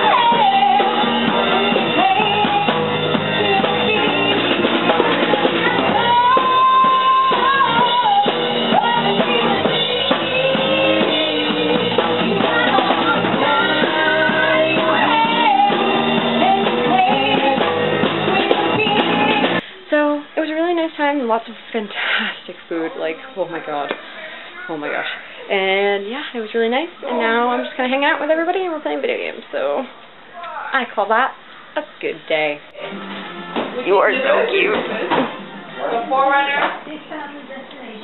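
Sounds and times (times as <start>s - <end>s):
woman singing into microphone: 0.0s - 19.6s
guitar: 0.0s - 38.0s.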